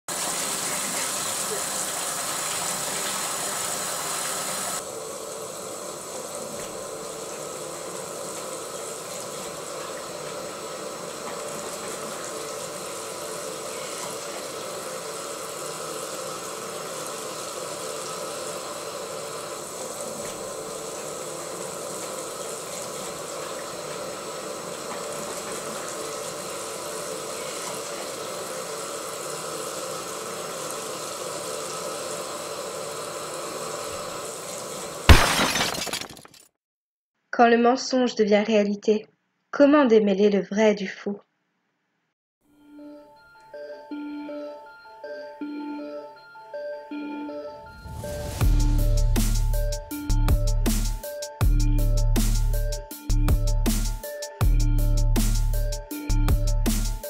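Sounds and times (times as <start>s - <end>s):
tap water running into sink: 0.1s - 35.1s.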